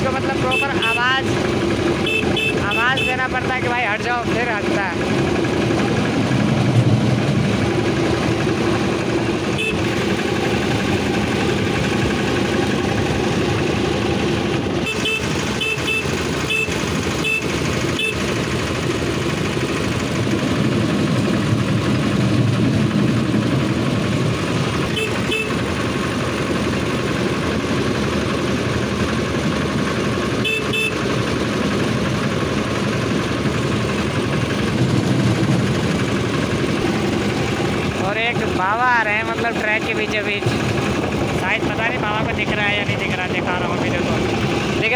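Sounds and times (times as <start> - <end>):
rail trolley engine and wheels: 0.0 - 44.9
horn short beeps: 0.4 - 1.2, 2.0 - 3.2, 9.5 - 9.9, 14.8 - 18.2, 24.9 - 25.6, 30.4 - 31.1.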